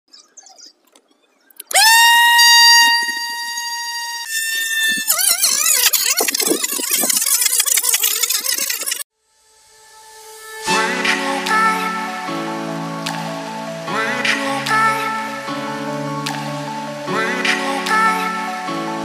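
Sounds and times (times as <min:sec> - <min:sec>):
toy motor high whine: 0:01.6 - 0:09.1.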